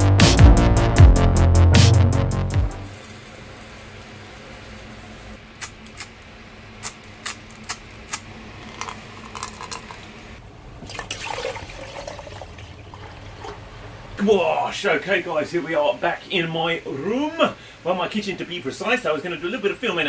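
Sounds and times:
liquid pouring into jug: 8.6s - 10.2s, 10.8s - 13.9s.

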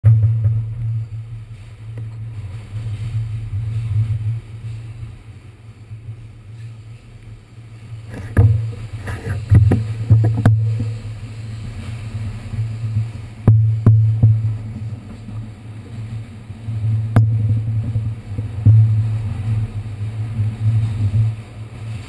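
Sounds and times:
subway car running on rails: 0.1s - 22.0s
knocks and rattles: 8.1s - 11.0s.

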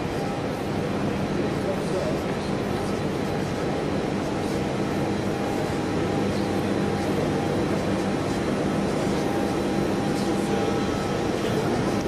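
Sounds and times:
hangar machinery hum: 0.0s - 12.0s.

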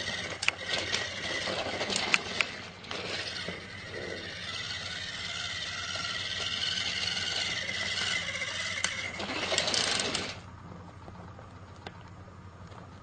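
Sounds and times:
toy train motor and gears: 0.0s - 10.5s.

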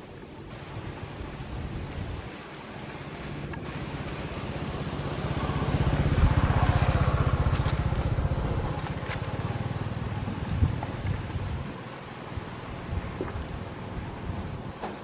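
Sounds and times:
vehicle engine passing: 2.9s - 12.0s.

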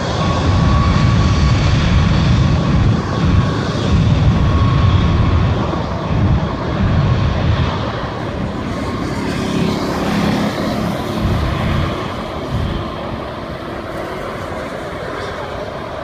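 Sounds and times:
car road noise: 0.0s - 16.0s
cars passing by: 8.4s - 15.4s.

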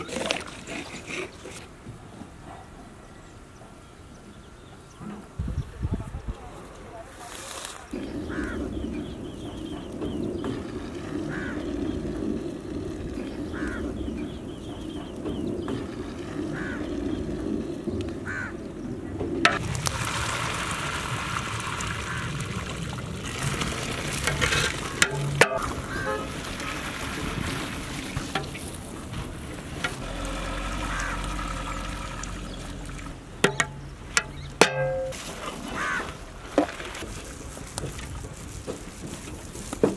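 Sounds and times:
water splashing into pot: 19.5s - 28.7s.

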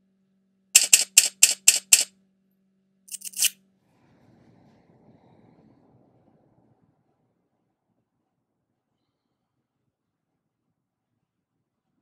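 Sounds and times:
sharp shutter-like clicks: 0.8s - 2.1s, 3.1s - 3.5s.

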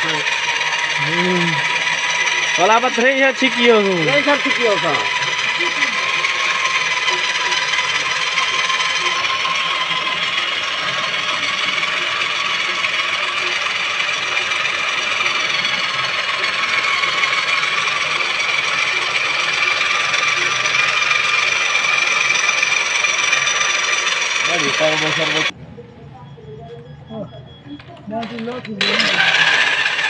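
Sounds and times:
electric drill running: 0.0s - 25.5s, 28.2s - 30.0s.

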